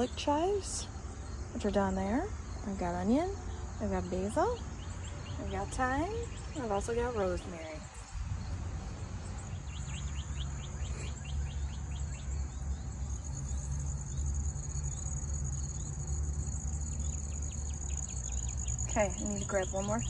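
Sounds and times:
insects trilling: 0:00.0 - 0:20.0
pulsed insect chirping: 0:08.0 - 0:20.0.

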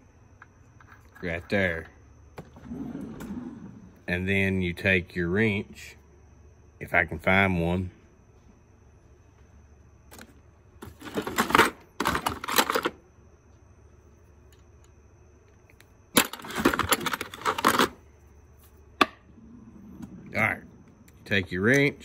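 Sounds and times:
metal tools clattering: 0:10.8 - 0:12.9, 0:16.2 - 0:18.0.

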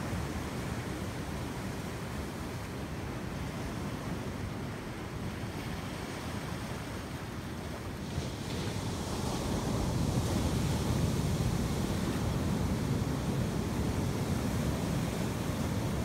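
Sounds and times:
wind rumbling on microphone: 0:03.4 - 0:16.0
ocean surf breaking: 0:08.0 - 0:16.0.

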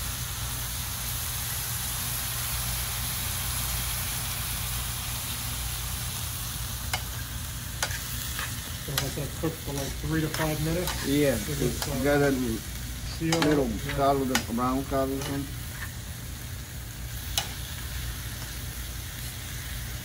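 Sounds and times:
steak sizzling in a skillet: 0:00.0 - 0:20.0
metal tongs clicking on pan: 0:06.9 - 0:07.2, 0:07.8 - 0:12.3, 0:13.2 - 0:16.0, 0:17.2 - 0:18.6.

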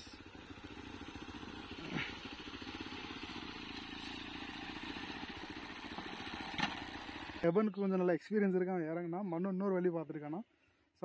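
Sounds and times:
motorcycle engine running: 0:00.0 - 0:07.9.

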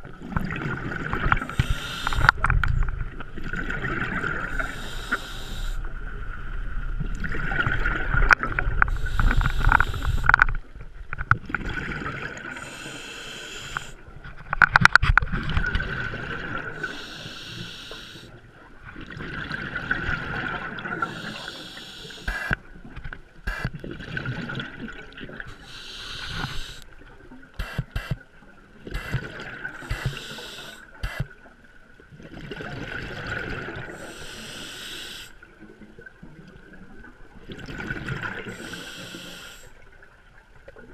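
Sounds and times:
bubbles gurgling underwater: 0:00.0 - 0:04.8, 0:05.9 - 0:12.7, 0:14.6 - 0:17.0, 0:18.7 - 0:21.3, 0:23.7 - 0:25.6, 0:28.8 - 0:30.3, 0:32.1 - 0:34.1, 0:35.5 - 0:38.6
scuba regulator breathing: 0:01.4 - 0:02.4, 0:04.5 - 0:05.9, 0:08.9 - 0:10.4, 0:12.4 - 0:14.0, 0:16.8 - 0:18.3, 0:21.0 - 0:22.6, 0:25.5 - 0:26.9, 0:27.6 - 0:28.2, 0:28.9 - 0:31.3, 0:33.9 - 0:35.4, 0:38.4 - 0:39.8
short clicks: 0:27.6 - 0:28.2.

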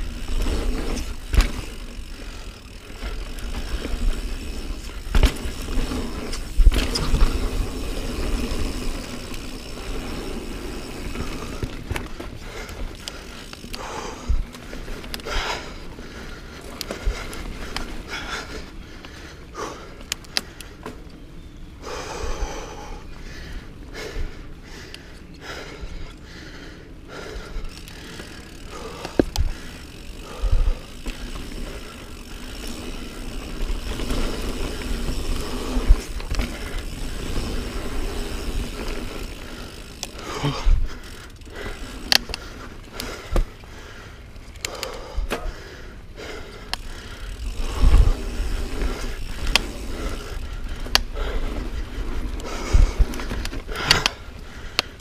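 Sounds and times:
bike knocks and rattles: 0:00.0 - 0:15.7, 0:27.5 - 0:44.0, 0:44.7 - 0:45.6
bike tyres rolling on dirt: 0:00.0 - 0:55.0.

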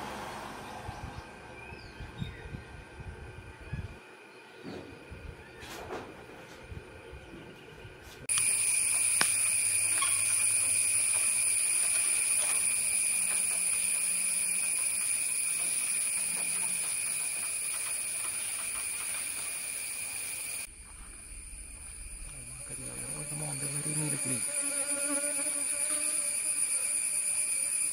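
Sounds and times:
insect droning: 0:08.3 - 0:27.9.

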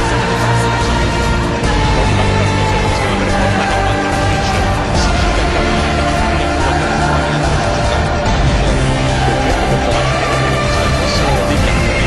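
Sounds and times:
loud music with held notes: 0:00.0 - 0:12.0.

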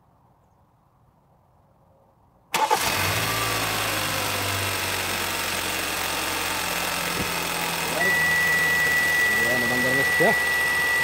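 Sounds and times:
car engine starting and idling: 0:02.5 - 0:11.0.

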